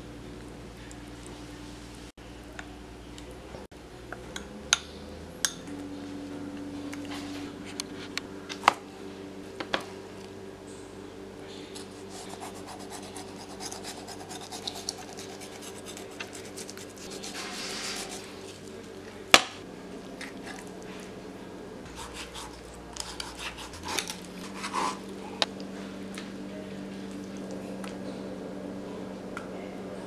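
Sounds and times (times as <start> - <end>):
knife scraping fish: 11.8 - 18.6, 21.9 - 25.0.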